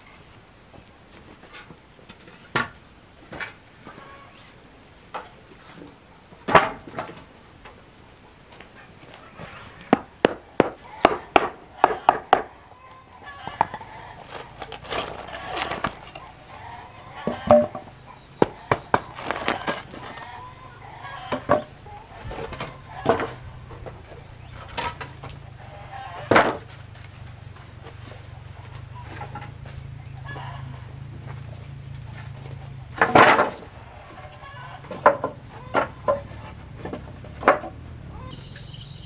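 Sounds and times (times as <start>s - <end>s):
scraping: 13.3s - 28.0s.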